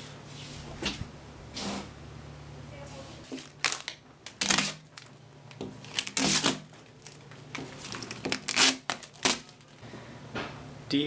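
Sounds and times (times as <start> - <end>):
rustling and crinkling: 2.9 - 9.8.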